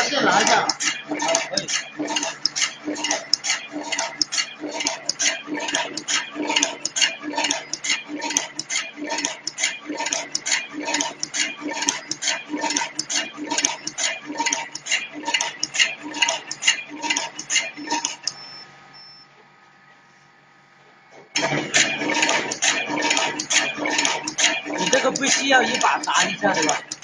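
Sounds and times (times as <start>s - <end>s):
machine clattering metallic clicks: 0.3s - 18.4s, 21.4s - 27.0s.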